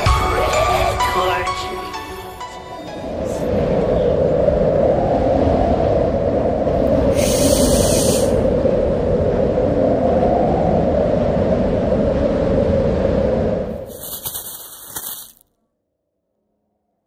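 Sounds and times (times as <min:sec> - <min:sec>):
wind rumbling: 0:02.5 - 0:15.4.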